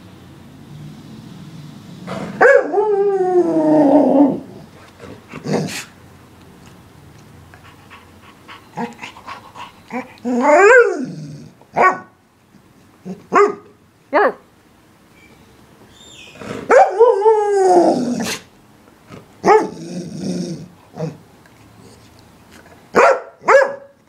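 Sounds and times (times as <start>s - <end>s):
dog yapping: 2.3s - 2.8s, 11.7s - 12.1s, 13.1s - 13.7s, 16.2s - 17.2s, 23.0s - 23.9s.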